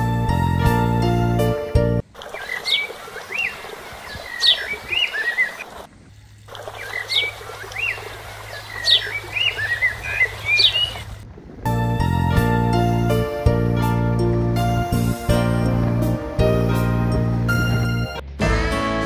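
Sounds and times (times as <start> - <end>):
songbird singing: 2.2 - 11.2.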